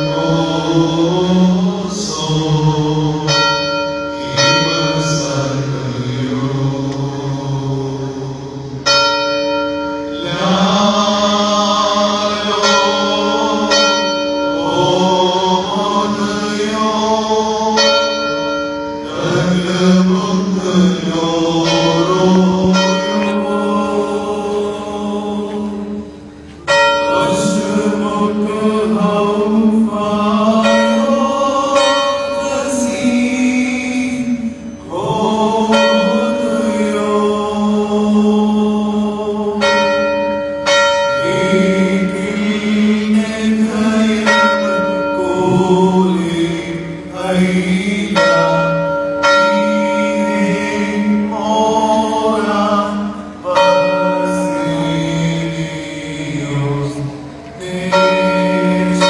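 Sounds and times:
group chanting a hymn: 0.0s - 59.0s
bell ringing: 17.8s - 29.4s.

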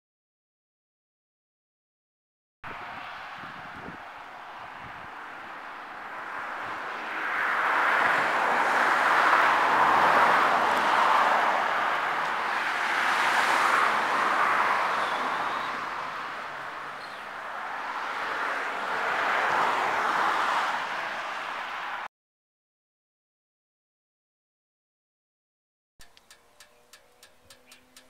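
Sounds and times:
cars passing: 2.7s - 22.1s, 26.0s - 28.0s.

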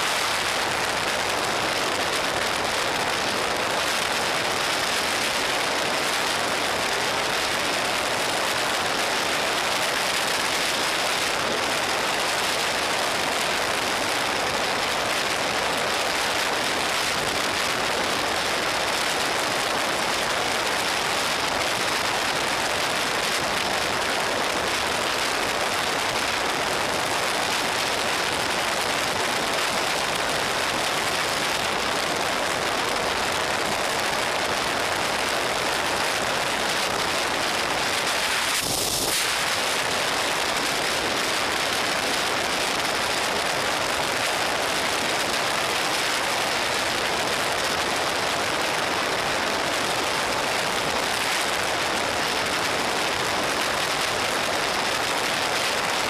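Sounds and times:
wind rushing over microphone: 21.4s - 47.6s.

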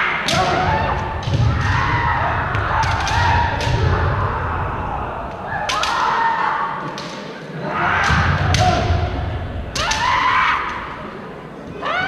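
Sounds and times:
fencers shouting: 0.0s - 12.0s
bamboo swords cracking: 9.8s - 10.7s.

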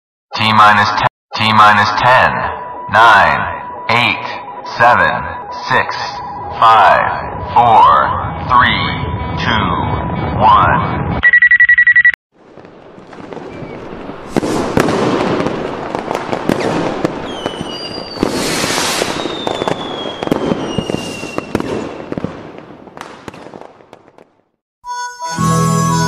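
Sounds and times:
fireworks crackling and popping: 12.4s - 24.6s
fireworks whistles sliding down: 16.5s - 22.2s.

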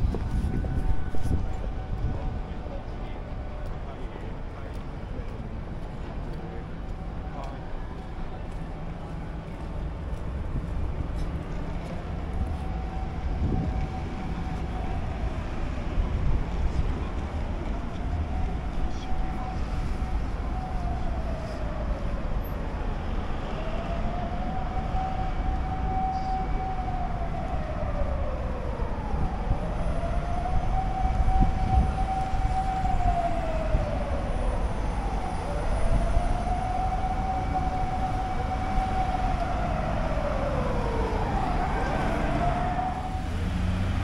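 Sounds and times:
siren wailing: 0.0s - 3.5s, 11.8s - 16.8s, 17.6s - 44.0s
city traffic rumble: 0.0s - 44.0s.

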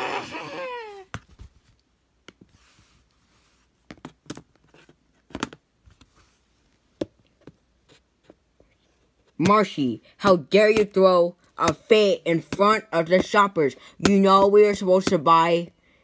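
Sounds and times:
voice wailing: 0.0s - 1.1s.

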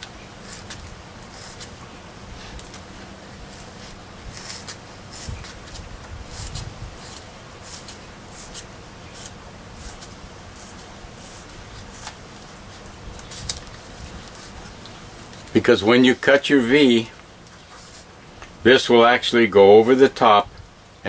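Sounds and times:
knife cutting foam board: 0.4s - 1.8s, 3.5s - 12.2s.

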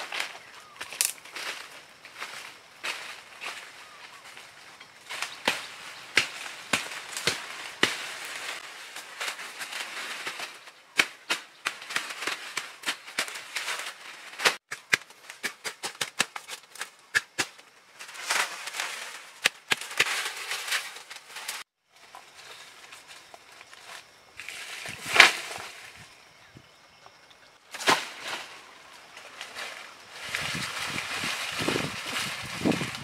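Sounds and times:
sharp cracks and knocks: 0.0s - 1.6s, 5.0s - 8.6s, 9.2s - 21.6s, 27.7s - 28.5s
rustling noise: 0.0s - 10.8s, 17.8s - 26.2s, 27.7s - 33.0s.

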